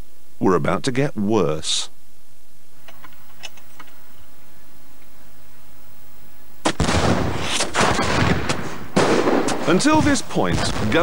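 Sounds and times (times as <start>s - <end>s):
cannon blast: 6.6s - 11.0s
sharp cracks and bangs: 6.6s - 11.0s.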